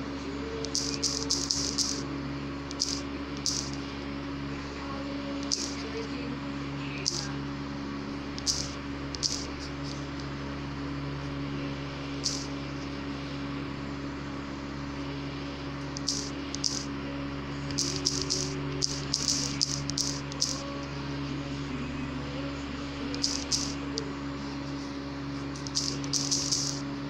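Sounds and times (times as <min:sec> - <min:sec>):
low electrical hum: 0:00.0 - 0:27.0
touchscreen typing clicks: 0:00.6 - 0:02.0, 0:23.1 - 0:23.8.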